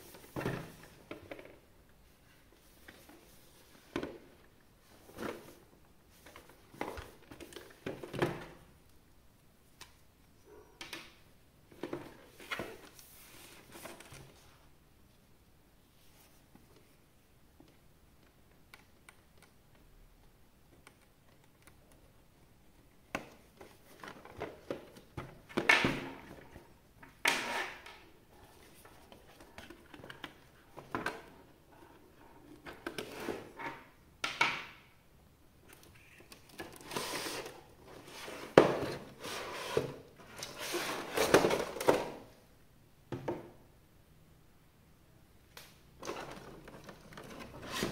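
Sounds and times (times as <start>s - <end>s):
packaging rustling and scraping: 36.0s - 42.0s, 46.0s - 47.9s.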